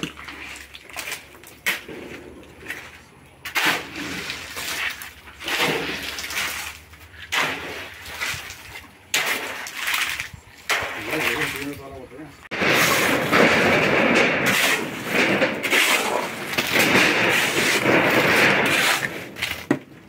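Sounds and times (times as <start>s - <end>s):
shovel scraping gravel on concrete: 0.0s - 8.6s, 14.4s - 19.7s.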